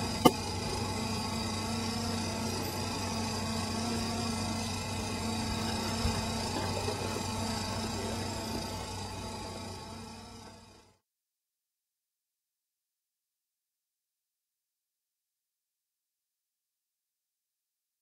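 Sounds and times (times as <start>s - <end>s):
electric motor humming: 0.0s - 10.9s.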